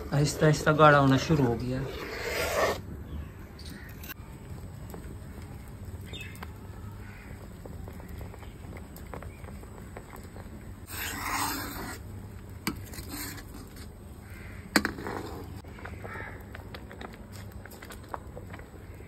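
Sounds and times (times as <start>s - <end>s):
crows cawing: 7.0s - 8.2s, 14.2s - 14.8s, 15.6s - 16.5s.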